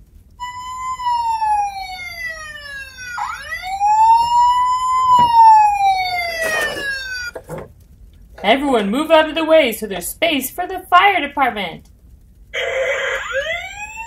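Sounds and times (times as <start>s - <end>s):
toy police siren wailing: 0.4s - 7.3s, 12.6s - 14.0s.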